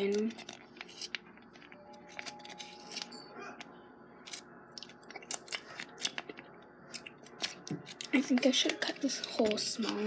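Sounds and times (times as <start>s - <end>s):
plastic pouch crinkling: 0.1s - 3.1s.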